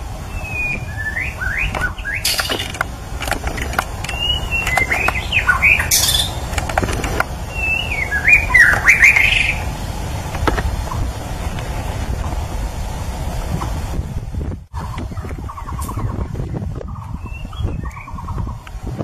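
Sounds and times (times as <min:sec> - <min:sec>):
wind rumble on microphone: 0:00.0 - 0:19.0
bird singing whistled notes: 0:00.3 - 0:02.7, 0:04.1 - 0:06.4, 0:07.5 - 0:09.7, 0:15.1 - 0:18.6.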